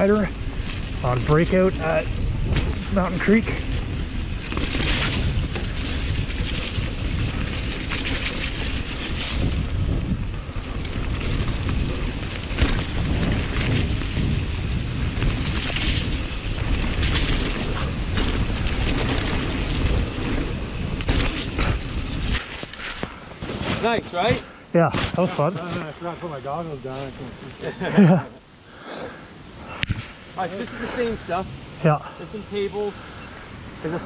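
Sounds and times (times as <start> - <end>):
wind buffeting microphone: 0.0 - 24.5
bike rattling over rough ground: 0.0 - 28.3.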